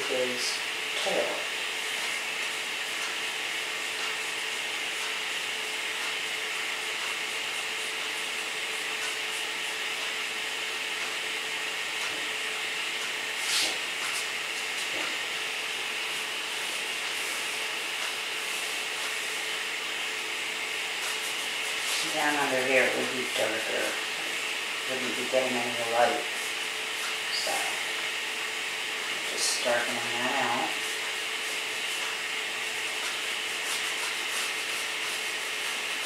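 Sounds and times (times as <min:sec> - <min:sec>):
steady hiss with faint hum: 0:00.0 - 0:36.0
paintbrush scrubbing on canvas: 0:13.3 - 0:28.2, 0:29.0 - 0:36.0.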